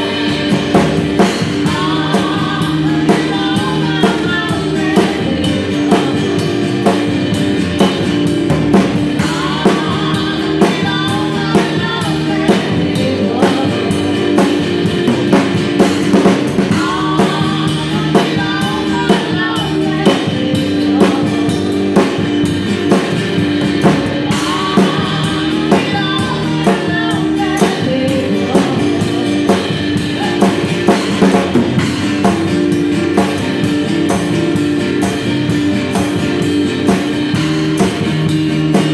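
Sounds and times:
woman singing: 0.0s - 6.7s, 9.1s - 15.4s, 16.2s - 31.4s
acoustic and electric guitar: 0.0s - 38.9s
drum kit played with sticks: 0.0s - 38.9s
upright bass: 0.0s - 38.9s.

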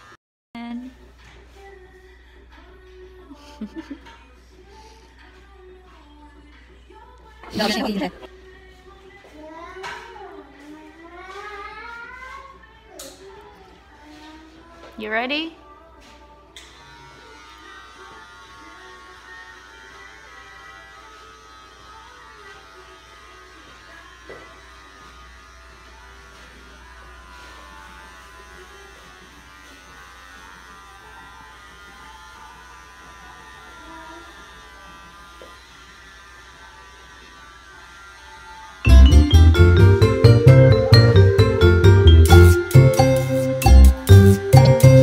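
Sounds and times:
hair clippers buzzing: 16.5s - 45.0s.

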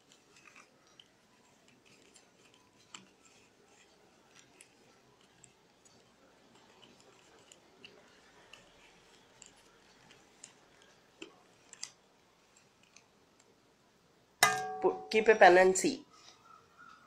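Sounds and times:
paper tubes clicking and rustling: 0.0s - 13.6s.

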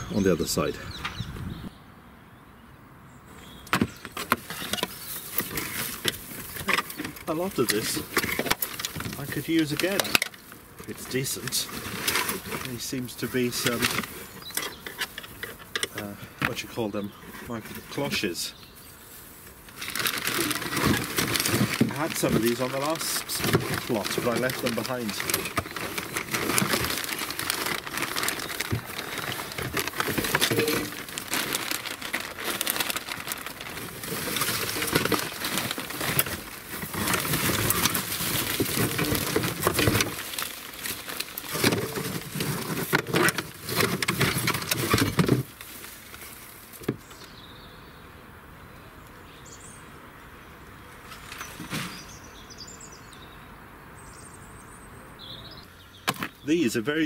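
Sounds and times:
quiet outdoor background: 0.0s - 57.0s
plastic sheeting crinkling: 4.2s - 16.0s, 17.2s - 47.0s.

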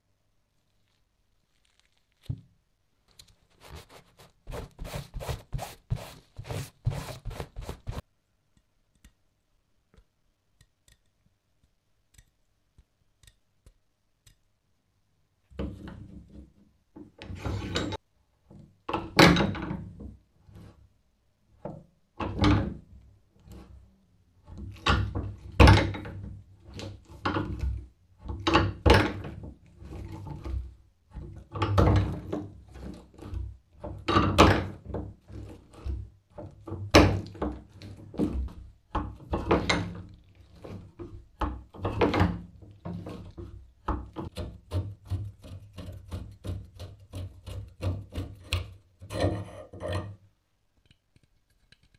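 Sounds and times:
cloth rubbing on metal wrench: 3.2s - 8.0s.

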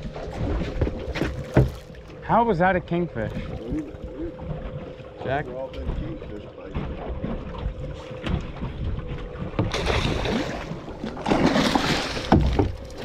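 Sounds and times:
low rumble: 0.0s - 13.0s
wind: 0.0s - 13.0s
fish splashing against hull: 3.1s - 13.0s.

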